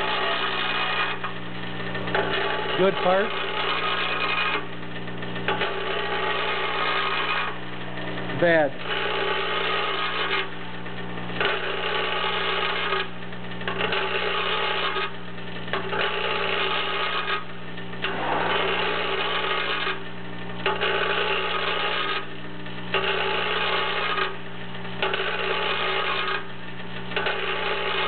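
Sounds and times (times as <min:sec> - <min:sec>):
electric hum: 0:00.0 - 0:12.0, 0:17.5 - 0:21.0.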